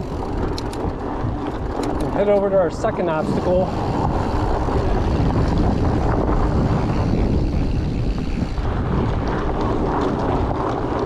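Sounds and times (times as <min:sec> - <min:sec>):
bike tyres rolling over dirt: 0:00.0 - 0:11.0
wind buffeting microphone: 0:00.0 - 0:11.0.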